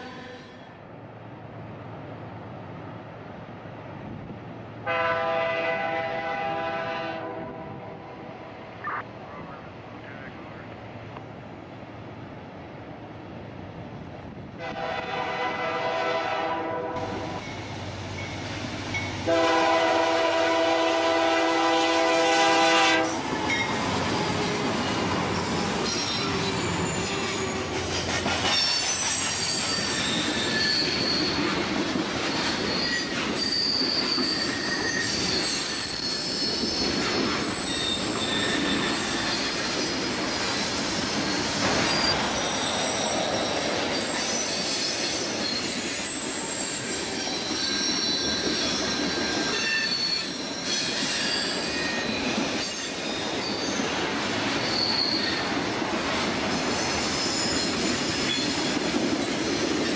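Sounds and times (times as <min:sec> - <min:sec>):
train horn blast: 0:00.0 - 0:00.7, 0:04.8 - 0:08.2, 0:14.6 - 0:17.4, 0:19.2 - 0:23.2
freight train rumbling past: 0:00.0 - 0:59.9
wheel squeals: 0:25.3 - 0:31.6, 0:32.2 - 0:53.9, 0:54.6 - 0:55.5, 0:56.6 - 0:59.9.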